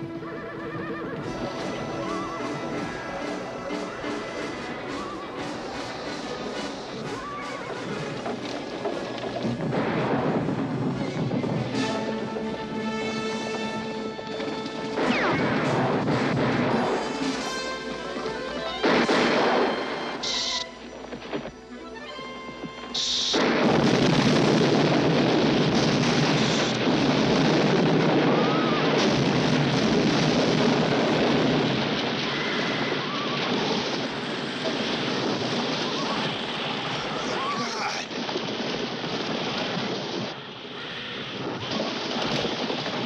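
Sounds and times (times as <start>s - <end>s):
explosion roar: 1.1s - 17.6s, 23.0s - 40.4s
falling debris: 23.0s - 40.4s, 41.6s - 43.0s.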